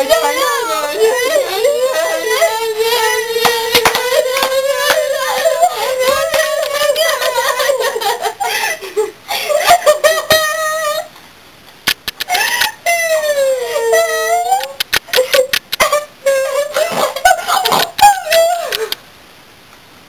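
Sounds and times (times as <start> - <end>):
girl singing a long high note: 0.0 - 7.7
hands slapping and clapping: 3.4 - 5.1.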